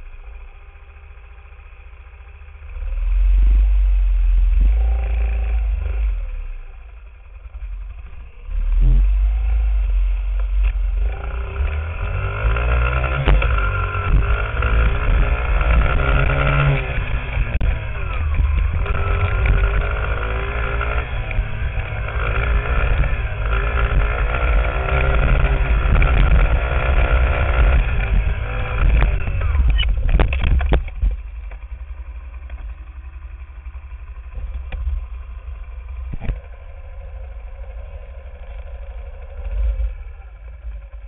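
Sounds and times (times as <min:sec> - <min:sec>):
dirt bike engine revving: 0:02.7 - 0:06.9, 0:07.5 - 0:30.9
wind rumble on microphone: 0:13.1 - 0:31.6.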